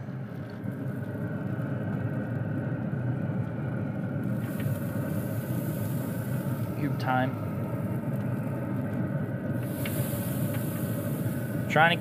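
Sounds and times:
pellet grill low rumble: 0.0s - 12.0s
faint high hiss: 9.6s - 12.0s.

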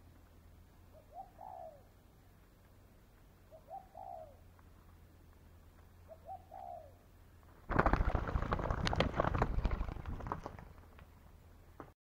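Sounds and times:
dove cooing: 0.9s - 2.0s, 3.4s - 4.5s, 6.0s - 7.1s.

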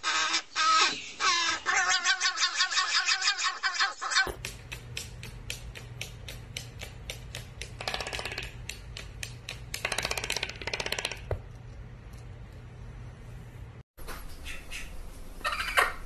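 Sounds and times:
bird feet clicking on wood floor: 4.3s - 11.4s
steady low hum: 11.3s - 15.4s.

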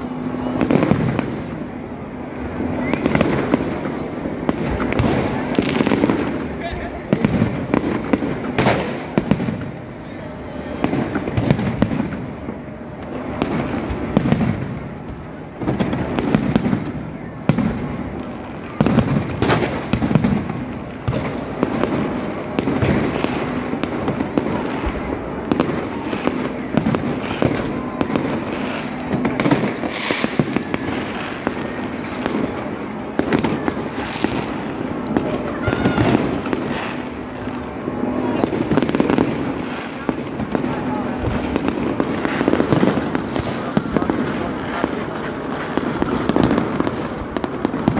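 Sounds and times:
fireworks bangs and crackles: 0.0s - 47.9s
large crowd voices: 0.0s - 47.9s.

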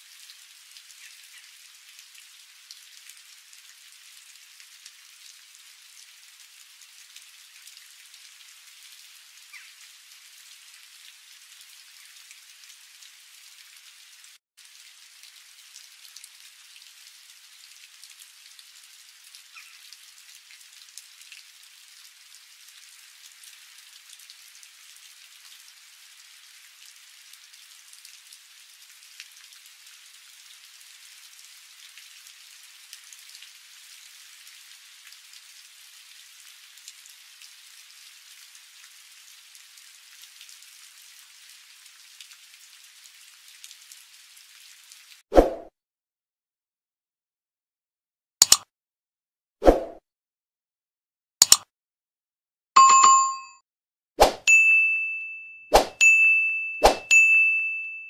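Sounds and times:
food sizzling in a frying pan: 0.0s - 45.2s.

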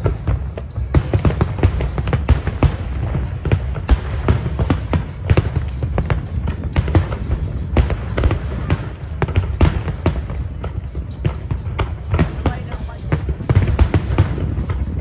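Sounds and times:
fireworks bursting: 0.0s - 15.0s.

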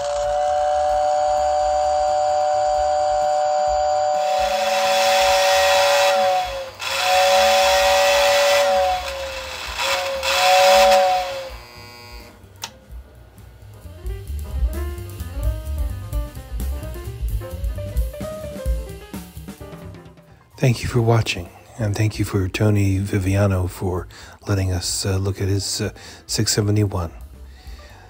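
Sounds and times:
rushing hiss: 0.0s - 11.6s
two-note train whistle: 0.0s - 12.4s.

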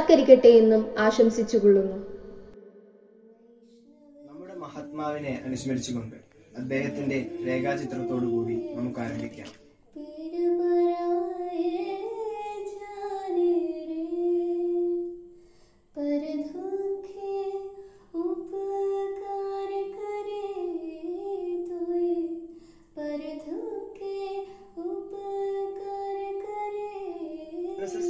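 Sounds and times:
person singing unaccompanied: 3.6s - 15.0s, 23.4s - 28.0s.

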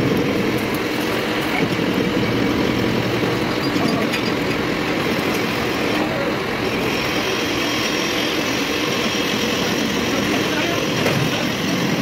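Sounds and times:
workshop machinery running: 0.0s - 12.0s.

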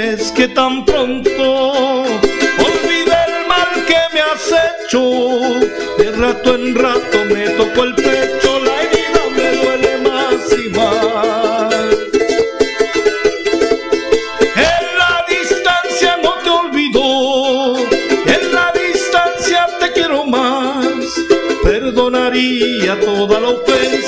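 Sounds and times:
man singing with vibrato: 0.0s - 12.8s, 14.3s - 24.0s
charango strumming: 0.0s - 24.0s.

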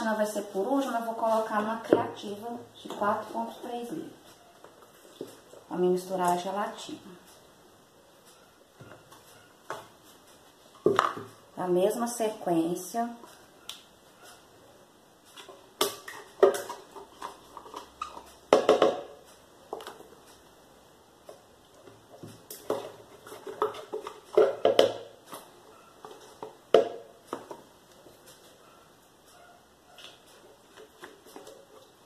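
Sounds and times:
cardboard cartons clicking and crinkling: 22.2s - 26.6s.

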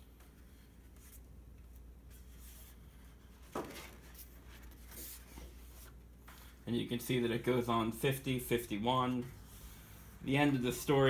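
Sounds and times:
low steady hum: 0.0s - 11.0s
paper sheets rustling: 0.9s - 6.6s.

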